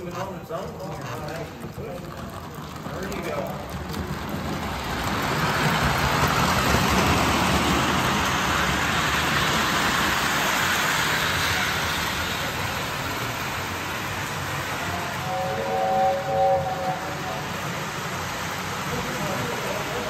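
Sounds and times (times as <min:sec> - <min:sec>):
model train running on track: 0:00.0 - 0:20.0.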